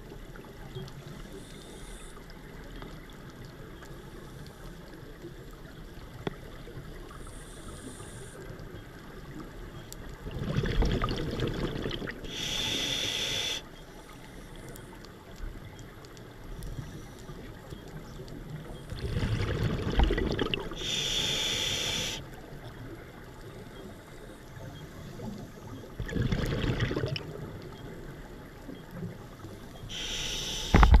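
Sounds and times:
regulator hiss on inhale: 1.1s - 2.3s, 7.1s - 8.5s, 12.3s - 15.0s, 16.6s - 17.5s, 20.8s - 22.3s, 29.9s - 31.0s
exhaled air bubbling: 10.2s - 13.3s, 18.8s - 22.2s, 25.9s - 27.5s.

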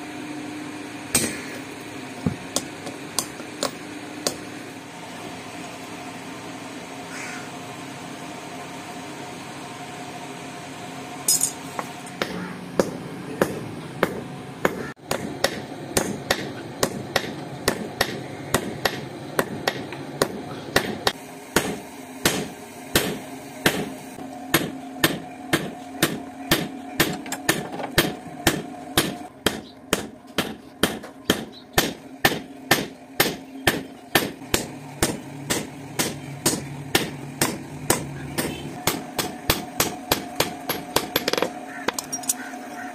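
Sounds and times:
steady hum: 0.0s - 42.9s
hammer striking steel on anvil: 1.1s - 1.6s, 2.5s - 4.4s, 11.3s - 23.9s, 24.5s - 42.4s.

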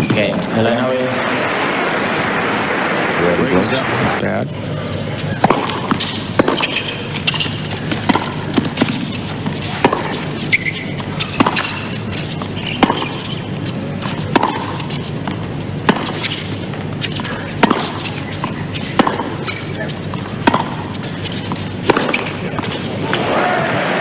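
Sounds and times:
murmur of stadium crowd: 0.0s - 5.9s, 22.9s - 24.0s
tennis ball hits: 5.2s - 23.3s.

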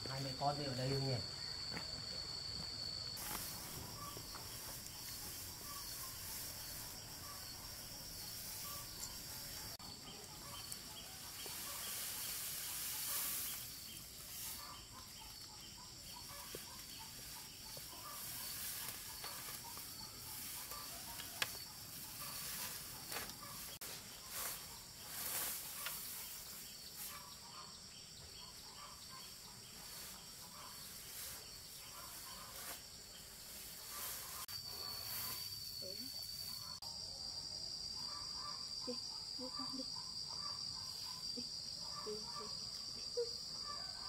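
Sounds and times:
high-pitched insect drone: 0.1s - 27.6s, 33.5s - 36.8s
rustling hiss: 3.2s - 27.5s, 29.7s - 36.8s.

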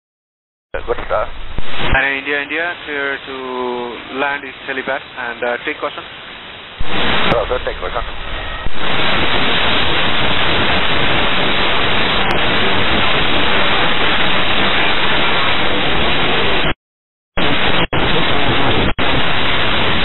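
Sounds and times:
radio static hiss: 0.8s - 16.8s, 17.4s - 20.0s.

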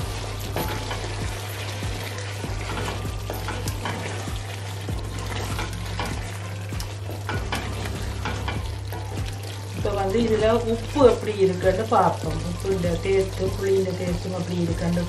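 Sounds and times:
spatula scraping in pot: 0.0s - 9.8s.

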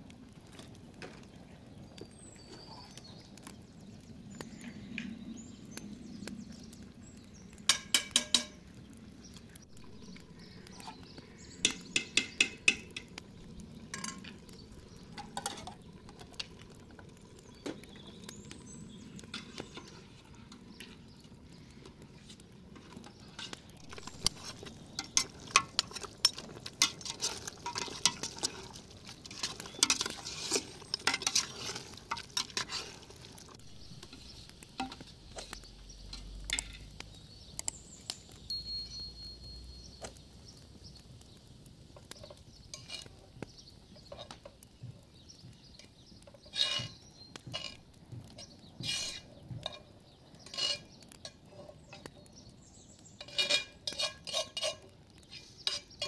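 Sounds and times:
metal pots and utensils clinking: 7.7s - 8.6s, 10.8s - 13.2s, 13.9s - 14.4s, 15.1s - 16.5s, 22.8s - 36.9s, 42.2s - 43.1s, 53.2s - 56.0s.

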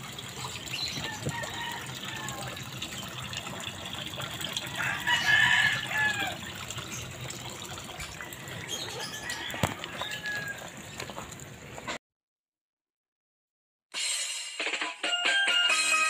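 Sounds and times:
rooster crowing: 1.1s - 2.6s, 4.6s - 6.4s, 9.0s - 10.8s.

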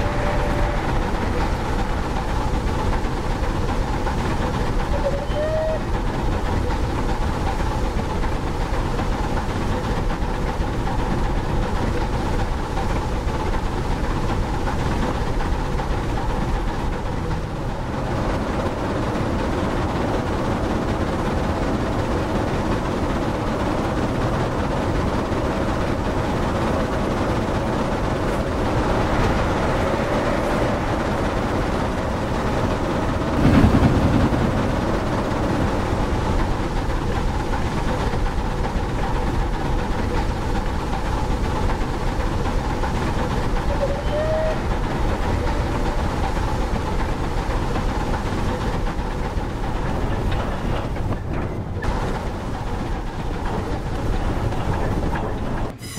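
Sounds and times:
model train rattling rumble: 0.0s - 55.9s.

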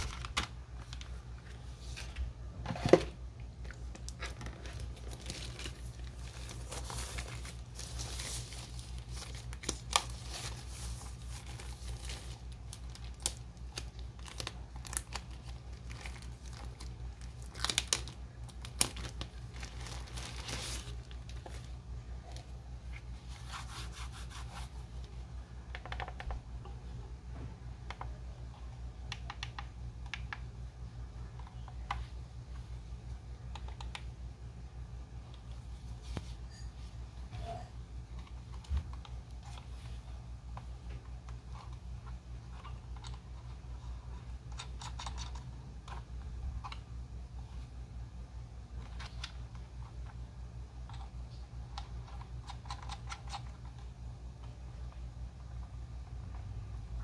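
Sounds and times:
steady low hum: 0.0s - 57.0s
packaging tearing and crinkling: 4.0s - 21.6s.

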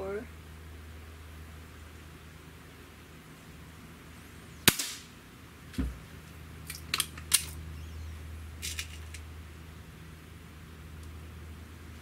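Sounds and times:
air rifle crack: 4.6s - 5.1s
dull thump: 5.7s - 6.0s.

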